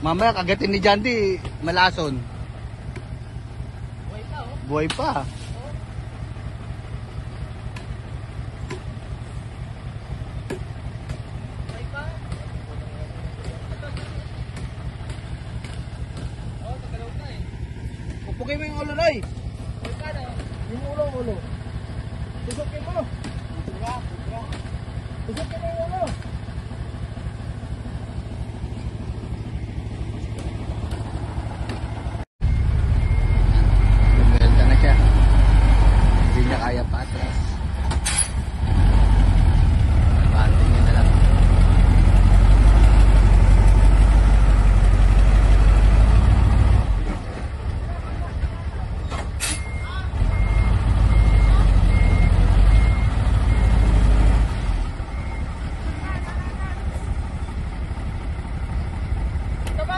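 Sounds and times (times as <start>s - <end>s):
diesel truck engine rumbling: 0.0s - 59.9s
reversing alarm beeping: 32.4s - 36.4s, 49.4s - 56.6s.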